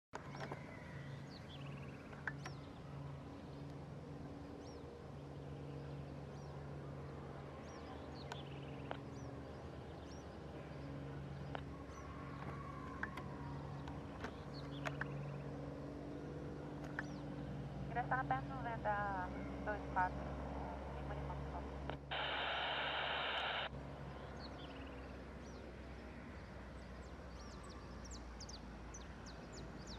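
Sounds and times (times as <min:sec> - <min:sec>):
birds chirping: 0:00.2 - 0:25.7, 0:26.4 - 0:29.9
low steady hum: 0:01.2 - 0:26.3
sharp clicks: 0:21.9 - 0:23.7.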